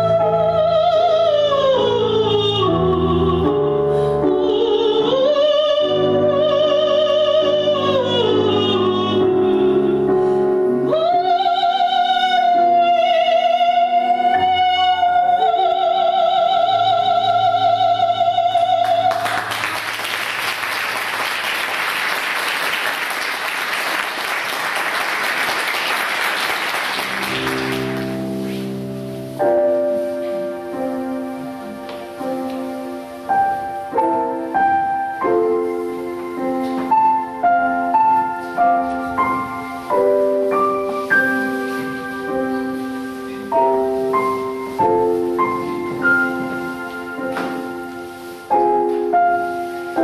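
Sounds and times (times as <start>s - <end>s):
woman singing opera: 0.0s - 19.5s
piano accompaniment: 0.0s - 50.0s
audience applauding: 19.1s - 28.3s.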